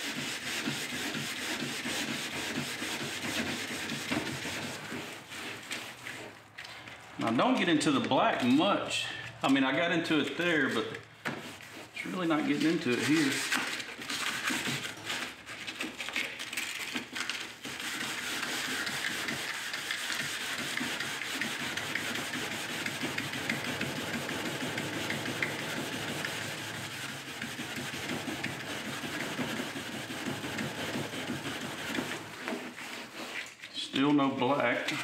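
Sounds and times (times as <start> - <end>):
abrasive pad scrubbing metal: 0.0 - 6.4, 10.7 - 13.6, 17.6 - 33.5.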